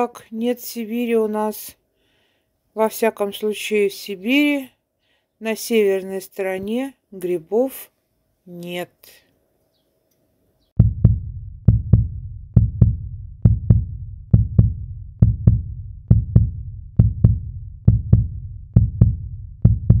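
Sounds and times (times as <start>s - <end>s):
heartbeat thumps: 10.8s - 20.0s.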